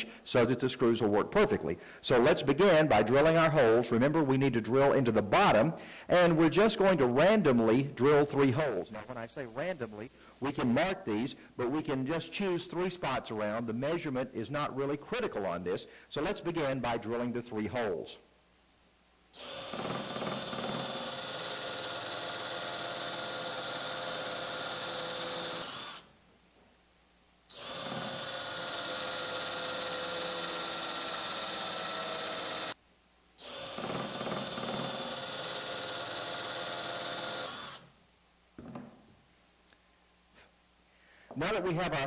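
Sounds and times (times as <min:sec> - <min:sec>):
cordless drill boring into wood: 0:19.3 - 0:26.1, 0:27.5 - 0:32.8, 0:33.4 - 0:37.9.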